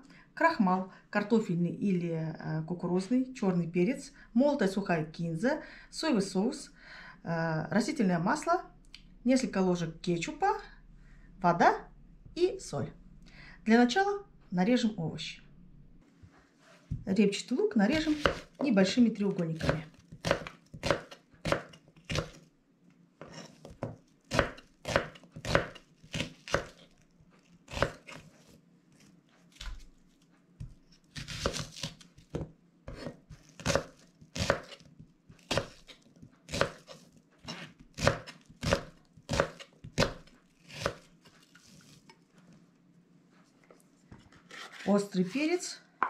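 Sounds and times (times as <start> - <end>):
knife chopping on plastic cutting board: 17.9 - 18.7, 19.4 - 22.4, 23.2 - 26.8, 27.7 - 28.5, 30.6 - 41.8.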